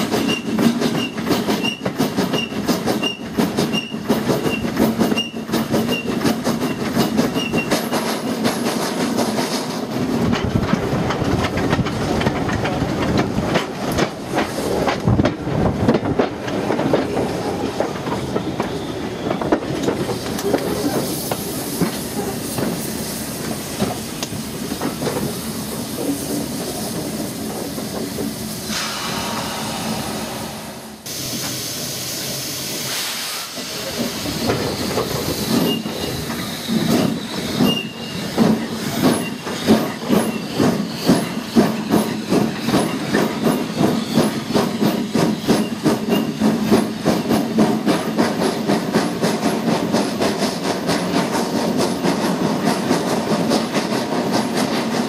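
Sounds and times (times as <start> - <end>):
steam locomotive exhaust rattle: 19.4 - 55.0
steam hiss: 20.1 - 55.0.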